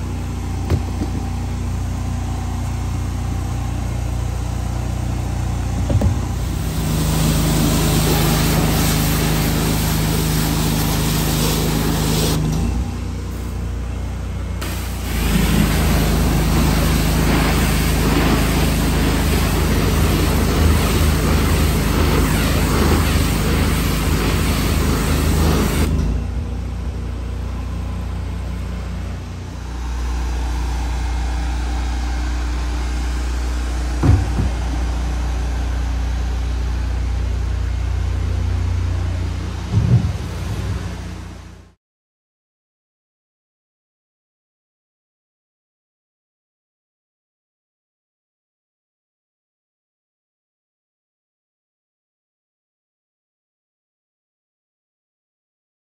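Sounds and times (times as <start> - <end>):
pressure washer motor running: 0.0 - 41.8
thump: 0.6 - 1.3, 5.8 - 6.3, 34.0 - 34.7, 39.7 - 40.8
high-pressure water jet spraying: 6.2 - 12.6, 14.6 - 26.0.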